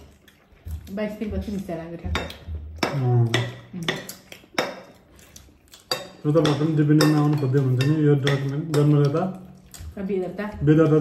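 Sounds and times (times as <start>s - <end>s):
metal spoon clinking on plate: 5.9s - 9.1s
man talking: 6.2s - 9.4s.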